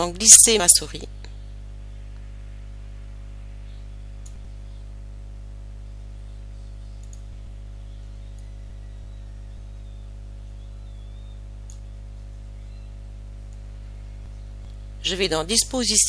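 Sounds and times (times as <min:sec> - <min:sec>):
low hum: 0:00.0 - 0:16.0
computer mouse clicks: 0:07.0 - 0:07.3, 0:11.6 - 0:11.9.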